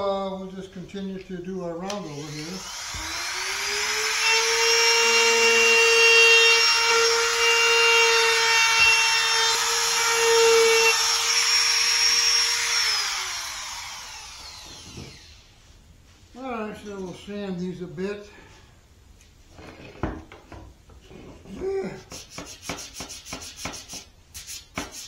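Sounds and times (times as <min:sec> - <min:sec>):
router bit rasping wood: 0:02.1 - 0:15.4
router motor whine: 0:02.1 - 0:15.5.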